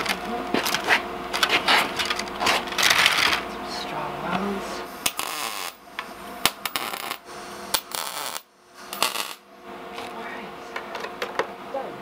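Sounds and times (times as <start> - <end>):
welder hissing crackle: 4.8 - 9.4.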